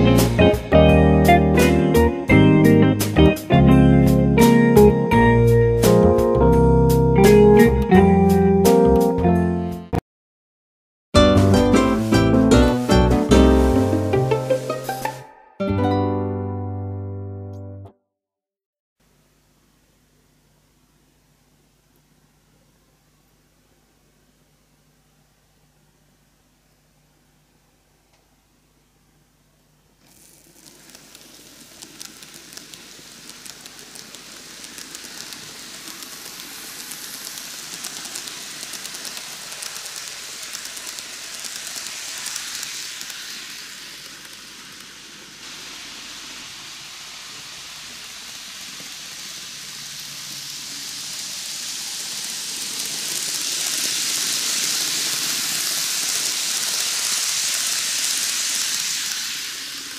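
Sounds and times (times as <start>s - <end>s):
model train running on track: 30.0s - 59.9s
rapid clicking of train wheels: 30.5s - 59.9s.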